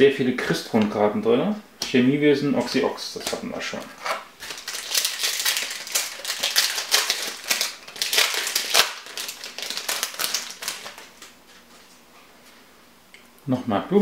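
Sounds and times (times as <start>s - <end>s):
cards being shuffled: 3.2s - 11.9s.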